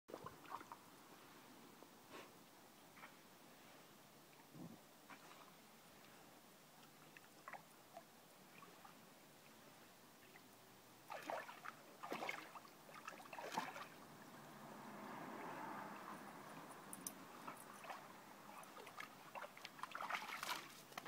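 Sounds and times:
water splashing in paddling pool: 0.1s - 0.9s, 10.3s - 21.0s.

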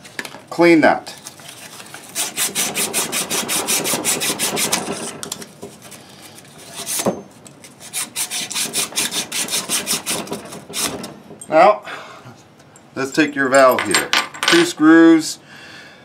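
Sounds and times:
sandpaper scrubbing copper pipe: 2.0s - 4.9s, 7.8s - 10.9s.

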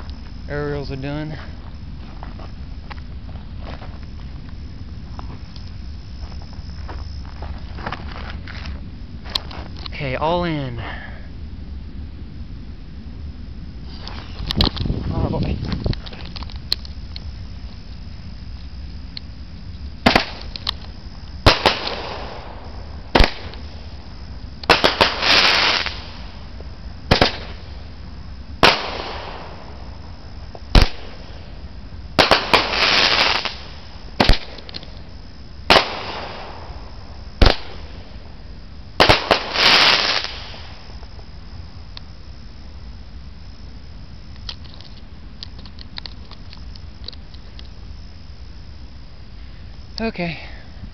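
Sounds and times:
crackling hiss: 0.0s - 50.9s
firework shots: 20.0s - 24.0s, 24.6s - 38.4s, 39.0s - 41.0s.

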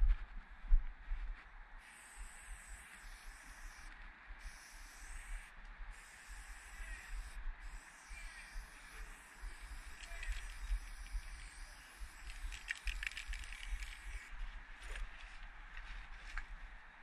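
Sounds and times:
spray paint can hissing: 1.9s - 5.4s, 6.0s - 14.3s.

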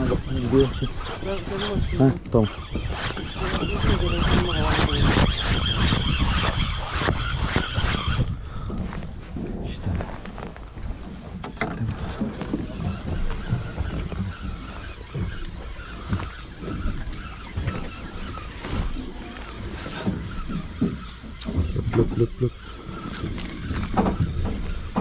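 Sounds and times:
low rumbling aboard boat: 0.0s - 25.0s.

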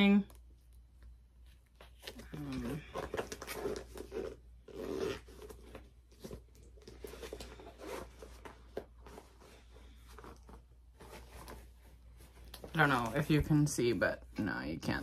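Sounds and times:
zipper: 2.2s - 5.8s.

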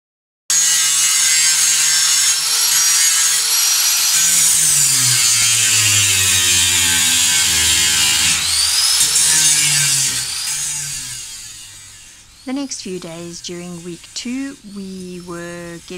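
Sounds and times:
angle grinder grinding steel: 0.5s - 15.9s.

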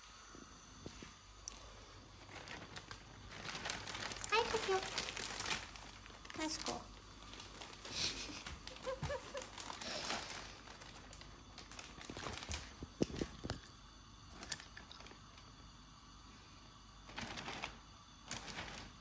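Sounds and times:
plastic bag rustling and crinkling: 0.8s - 13.7s, 17.0s - 19.0s.

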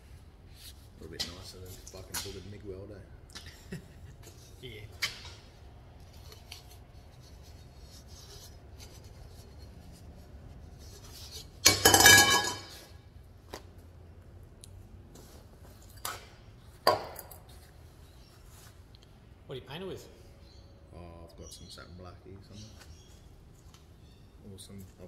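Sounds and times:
metal pipe clanking on workbench: 11.6s - 12.9s.

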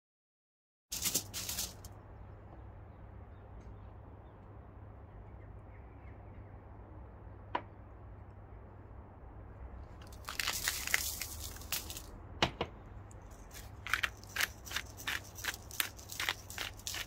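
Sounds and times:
aluminium foil crinkling: 0.9s - 1.9s, 10.0s - 12.1s, 13.2s - 17.0s
low background hum: 0.9s - 17.0s.

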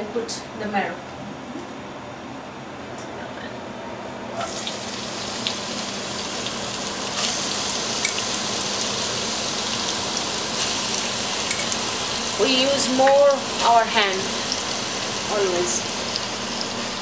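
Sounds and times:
vegetables sizzling in hot oil: 4.4s - 17.0s.

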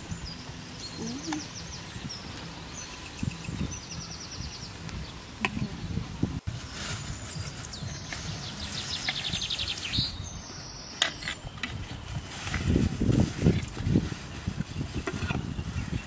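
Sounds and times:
birds chirping and trilling: 0.0s - 16.0s
rustling of plastic bag: 6.2s - 10.8s, 11.4s - 16.0s.

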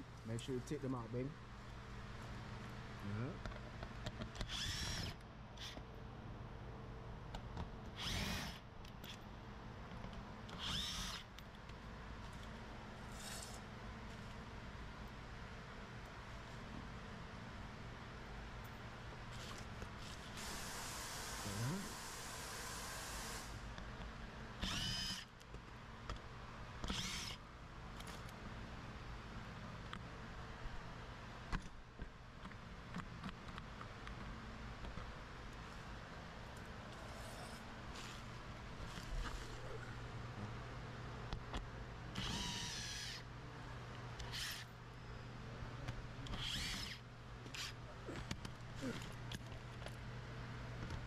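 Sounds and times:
cordless driver whining: 4.4s - 5.8s, 7.9s - 9.2s, 10.5s - 11.3s, 24.6s - 25.4s, 26.8s - 27.4s, 42.1s - 43.3s, 44.2s - 44.7s, 46.2s - 49.1s
steady hiss: 20.1s - 23.7s.

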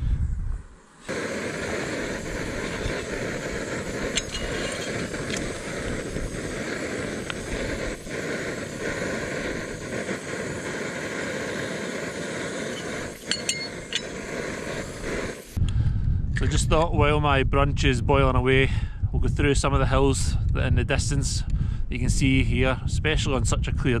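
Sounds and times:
water coming to the boil: 1.1s - 15.6s
gas stove burning: 1.1s - 15.8s.

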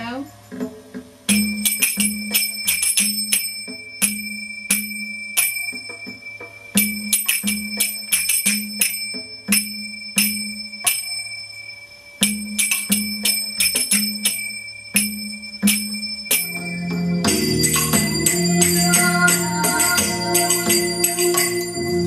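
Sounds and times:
finger cymbals ringing: 1.3s - 22.0s
background music: 12.2s - 22.0s.

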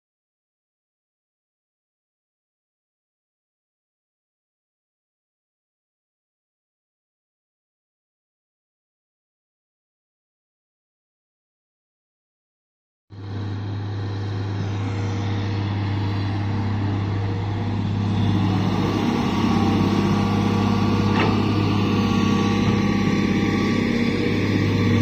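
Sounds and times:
excavator diesel engine running: 13.2s - 25.0s.

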